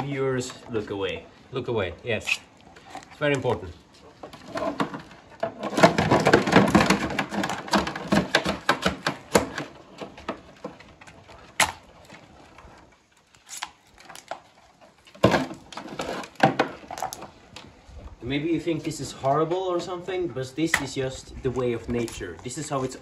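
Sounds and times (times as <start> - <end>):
knife crunching through shell: 13.3 - 14.4.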